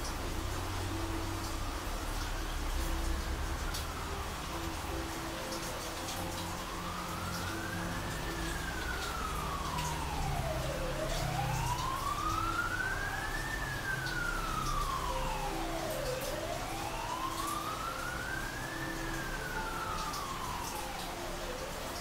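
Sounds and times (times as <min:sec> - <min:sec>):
siren wailing: 0:06.2 - 0:22.0.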